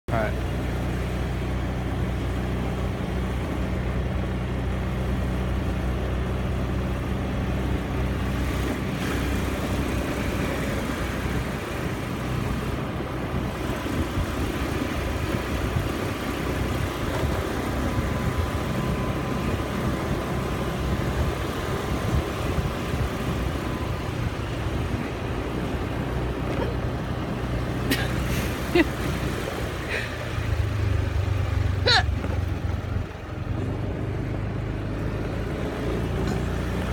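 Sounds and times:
road noise rumble: 0.0 - 36.9
vehicle engine running: 0.1 - 36.9.

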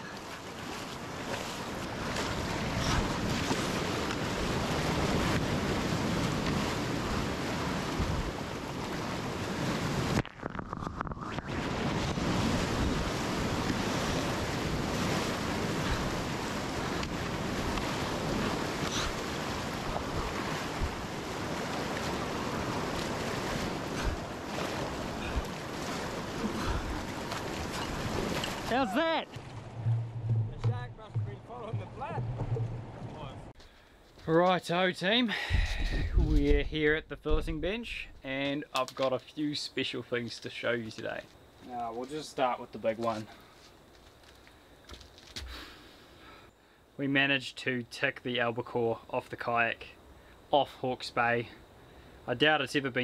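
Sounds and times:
surf breaking: 0.0 - 33.6
wind buffeting microphone: 0.6 - 28.7, 29.3 - 33.5, 35.5 - 37.8.

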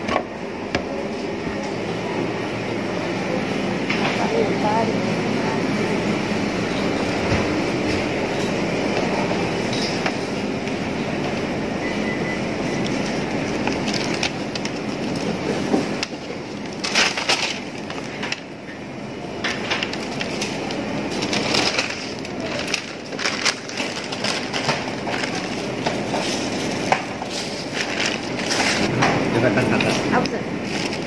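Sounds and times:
plastic packaging rustling: 12.7 - 18.6, 19.4 - 28.9, 29.8 - 31.0.

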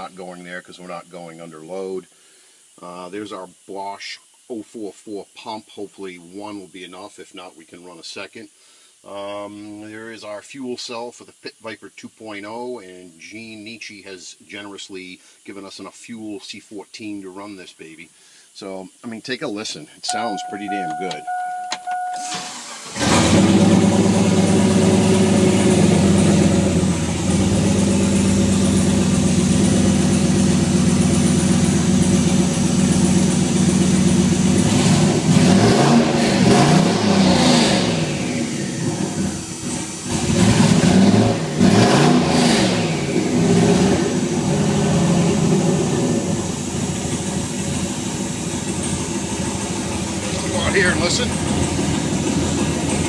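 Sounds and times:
car engine idling and revving: 20.4 - 53.0.

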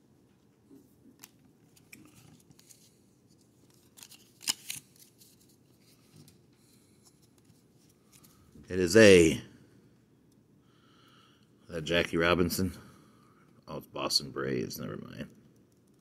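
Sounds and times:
trading cards rustling: 1.0 - 8.6.

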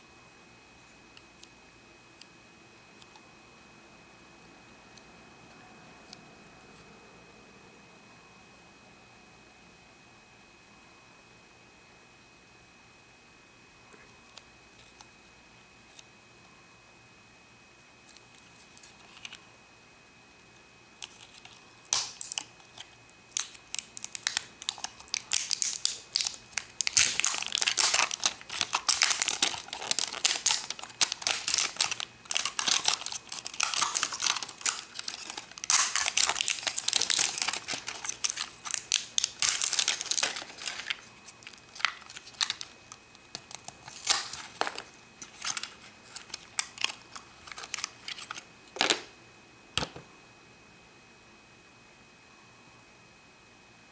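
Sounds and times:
plastic wrapper crinkling: 21.0 - 49.1.

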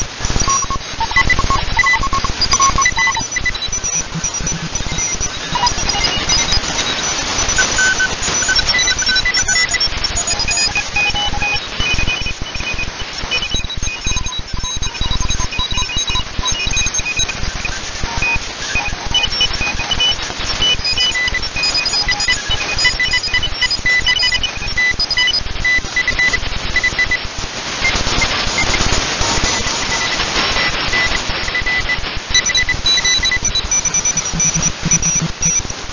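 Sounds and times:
morse code beeps: 0.0 - 27.2, 29.4 - 35.8
radio hiss and static crackle: 0.0 - 35.9
morse code beeping: 0.4 - 6.9, 30.9 - 35.8.

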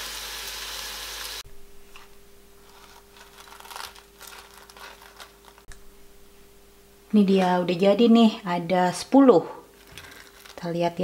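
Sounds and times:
oil sizzling: 0.0 - 6.5
faint steady hum: 0.0 - 11.0.

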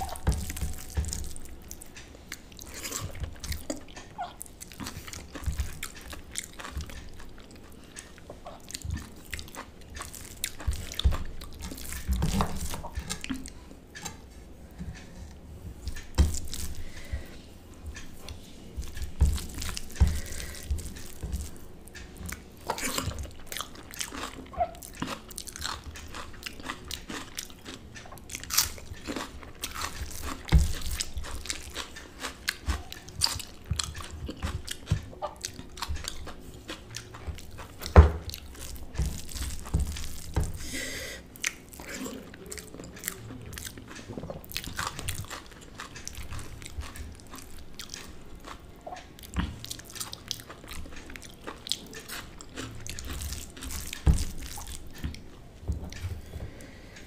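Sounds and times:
chewing and biting mouth sounds: 0.0 - 14.2, 15.8 - 56.6.

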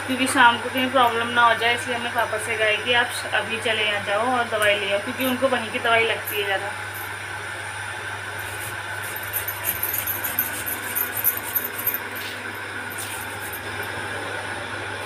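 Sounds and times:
steady mechanical hum: 0.0 - 15.0.

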